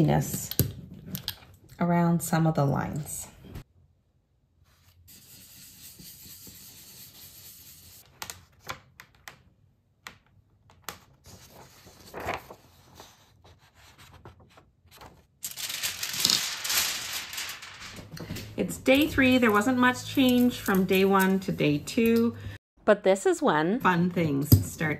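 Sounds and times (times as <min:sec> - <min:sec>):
paper scraping and rustling: 0:11.1 - 0:21.4
paper rubbing: 0:11.3 - 0:18.0
aluminium foil crinkling: 0:15.4 - 0:18.4.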